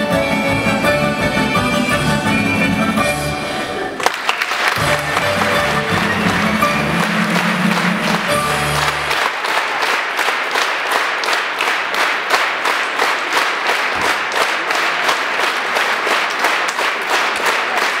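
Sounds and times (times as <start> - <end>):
folk dance music: 0.0 - 18.0
audience applauding: 3.9 - 18.0.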